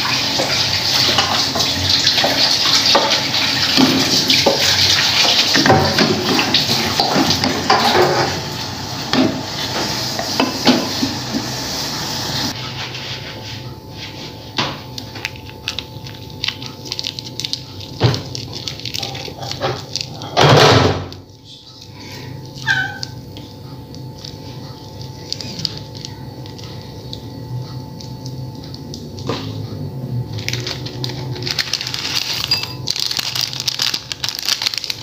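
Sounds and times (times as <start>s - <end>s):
water boiling hard in a pot: 0.0s - 12.6s, 15.8s - 21.2s.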